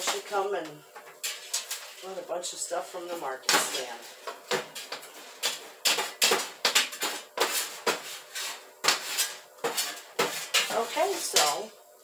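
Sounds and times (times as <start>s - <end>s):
metal scoop scraping metal: 6.9s - 11.6s.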